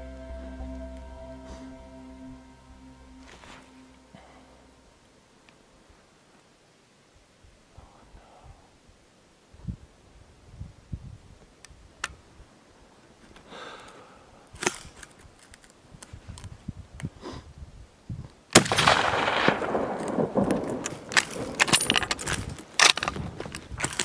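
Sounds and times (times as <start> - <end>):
rifle shot: 18.6 - 22.1
rolling noise and clicks: 19.7 - 24.0.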